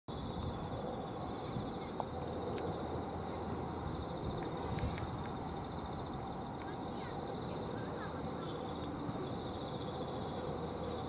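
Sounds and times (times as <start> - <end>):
insect trill: 0.1 - 11.0.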